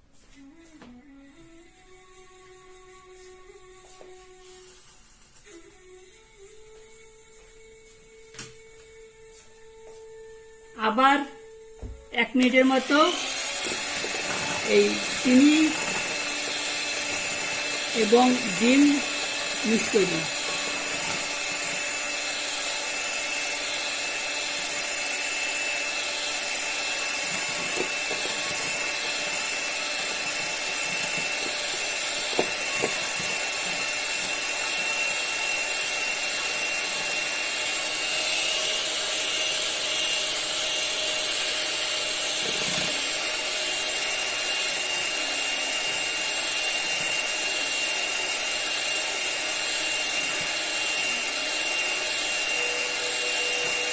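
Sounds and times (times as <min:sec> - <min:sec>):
electric hand mixer whining: 0:01.1 - 0:53.9.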